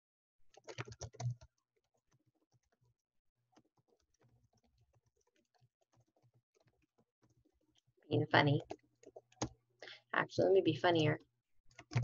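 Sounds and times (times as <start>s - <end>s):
typing on computer keyboard: 0.5s - 9.6s, 11.7s - 12.0s.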